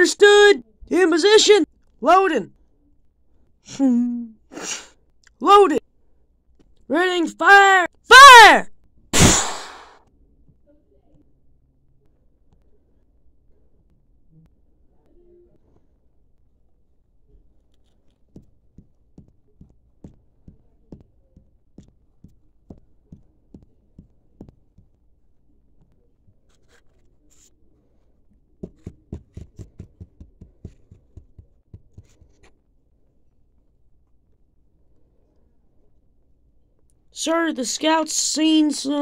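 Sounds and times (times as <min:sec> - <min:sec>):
plastic figures tapping on baseplate: 0:28.6 - 0:32.5.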